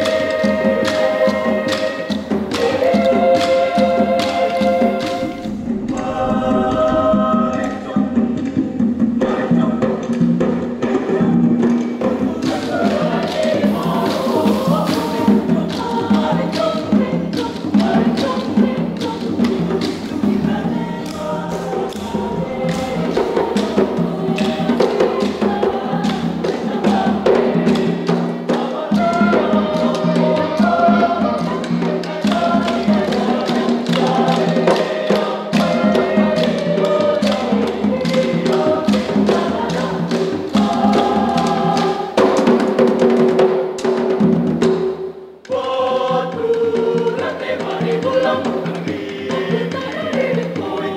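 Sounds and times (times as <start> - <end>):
rhythmic wooden clicks: 0.0 - 8.6, 11.7 - 42.4
choir singing in harmony: 0.0 - 50.9.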